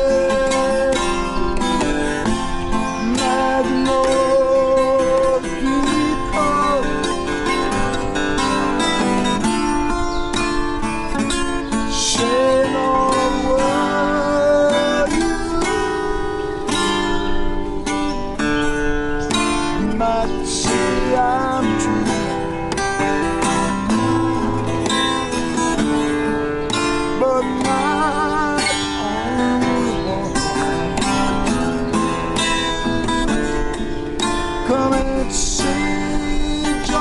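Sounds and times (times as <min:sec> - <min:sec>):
man singing: 0:00.0 - 0:02.3, 0:02.9 - 0:09.1, 0:11.8 - 0:16.6, 0:19.7 - 0:23.6, 0:27.0 - 0:31.6, 0:34.4 - 0:37.0
acoustic guitar strumming: 0:00.0 - 0:37.0.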